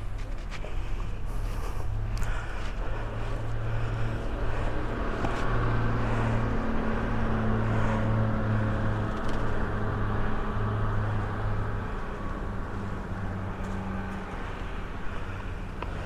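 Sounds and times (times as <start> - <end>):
outdoor noise: 0.0 - 16.0
vehicle engine humming: 0.0 - 16.0.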